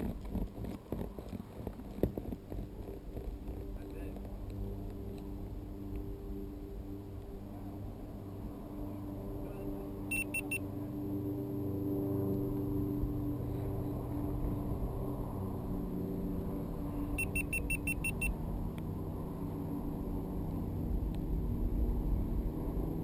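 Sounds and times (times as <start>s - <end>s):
steady low rumble: 0.0s - 23.0s
short high electronic beeps: 10.1s - 10.6s, 17.2s - 18.3s.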